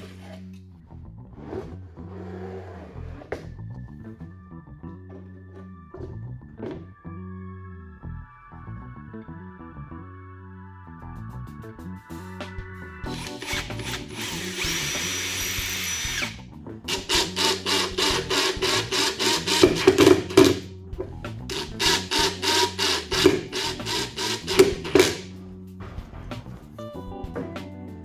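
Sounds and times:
background music: 0.0s - 28.0s
power drill whine: 13.1s - 20.6s, 21.5s - 25.3s.

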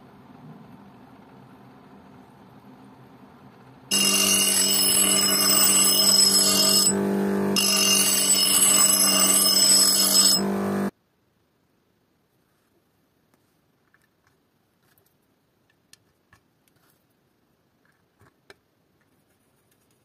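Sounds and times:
bench grinder motor hum: 3.9s - 10.9s
steel rasping on grinding wheel: 3.9s - 10.9s.

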